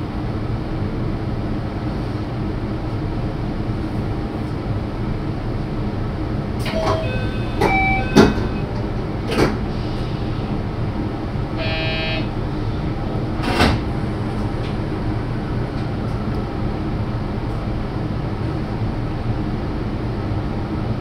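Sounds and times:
electric train rumbling: 0.0s - 21.0s
short pitched tone: 6.7s - 8.8s, 11.6s - 12.3s.

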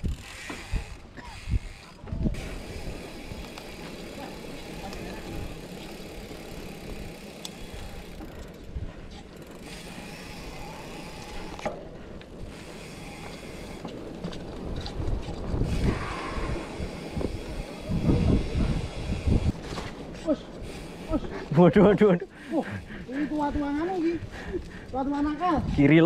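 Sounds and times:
bike chain and frame rattling: 0.0s - 26.0s
bike tyres rumbling on dirt: 0.0s - 26.0s.

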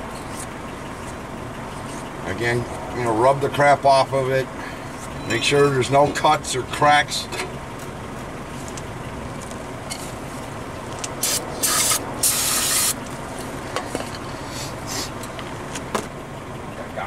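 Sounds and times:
aerosol spray hissing: 11.2s - 13.0s.

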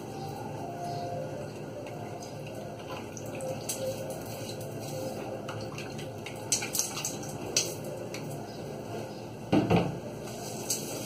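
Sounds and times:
clatter and splash: 5.7s - 7.8s.

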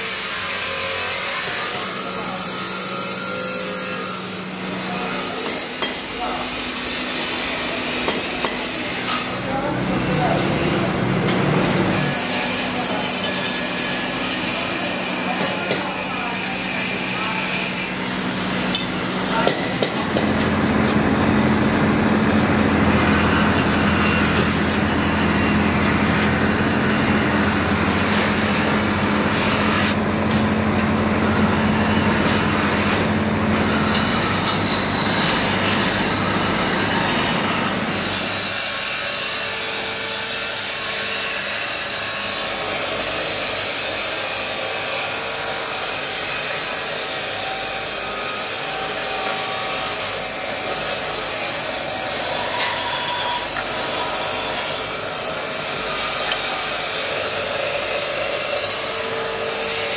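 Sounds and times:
hissing workshop machine: 0.0s - 59.9s
polishing wheel motor hum: 8.8s - 39.9s.

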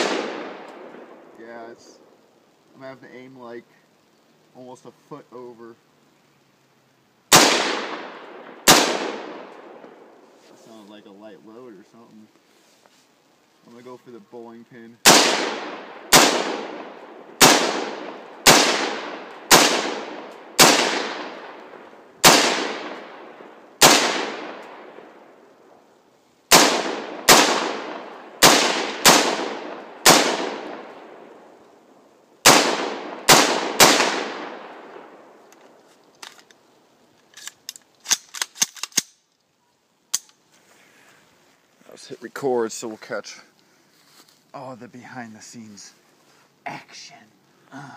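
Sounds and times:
rifle shots echoing: 0.0s - 1.3s, 7.3s - 10.2s, 15.0s - 25.5s, 26.5s - 31.5s, 32.4s - 35.4s
faint clicks: 35.5s - 39.5s.

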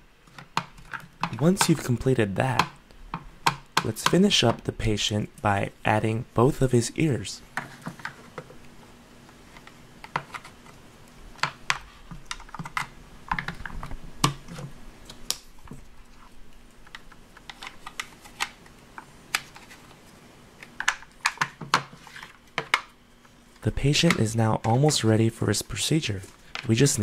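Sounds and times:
plastic toy parts clicking: 16.8s - 19.7s.

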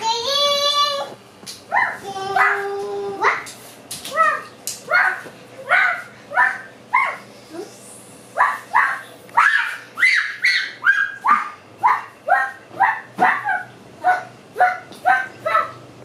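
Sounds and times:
dog barking: 1.7s - 2.6s, 4.9s - 7.3s, 8.4s - 15.8s.

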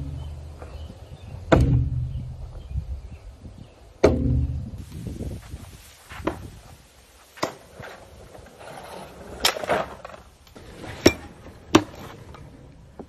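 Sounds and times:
knives striking wooden targets: 4.0s - 4.5s.

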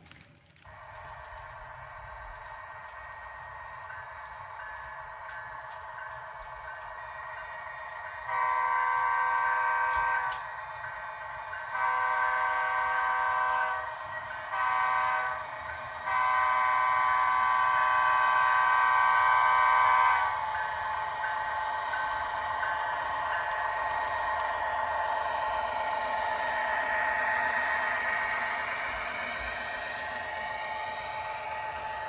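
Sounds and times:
model locomotive horn blasts: 8.3s - 10.5s, 11.6s - 32.0s.

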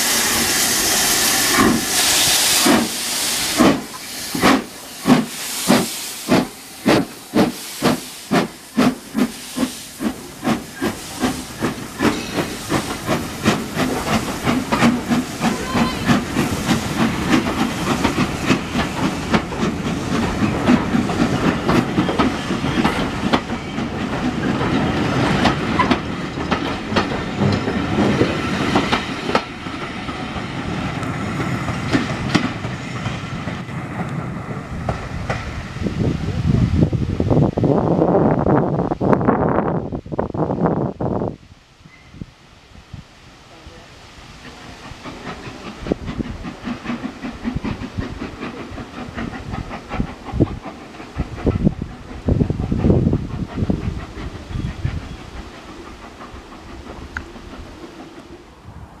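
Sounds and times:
steam locomotive exhaust chuffs: 0.0s - 41.3s, 44.2s - 58.8s
coaches rumbling on rails: 0.0s - 41.4s, 43.5s - 59.0s
steam hiss: 0.0s - 59.0s.

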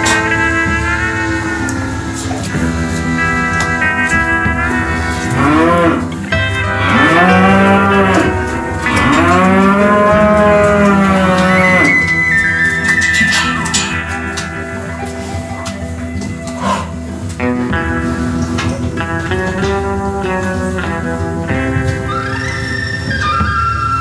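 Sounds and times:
cattle mooing: 0.0s - 15.8s, 16.4s - 17.2s
background music: 0.0s - 24.0s.

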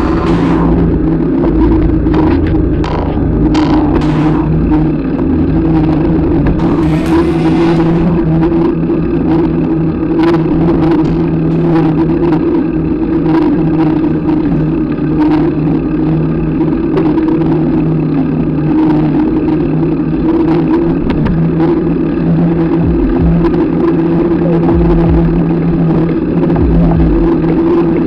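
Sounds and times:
clicks and rattles: 0.0s - 5.2s
low thumps: 0.0s - 14.7s, 22.7s - 23.8s, 24.4s - 28.0s
bike tyre humming on asphalt: 0.0s - 28.0s.

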